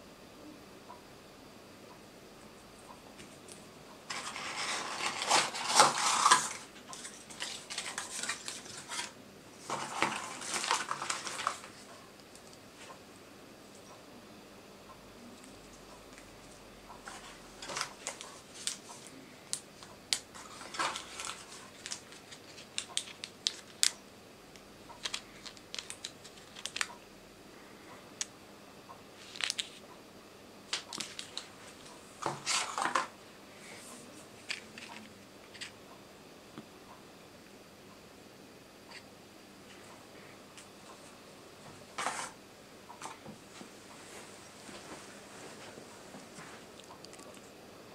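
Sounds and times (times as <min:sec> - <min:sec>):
plastic packaging crinkling: 0:04.1 - 0:11.8, 0:19.5 - 0:24.0, 0:25.0 - 0:26.9, 0:30.8 - 0:31.5.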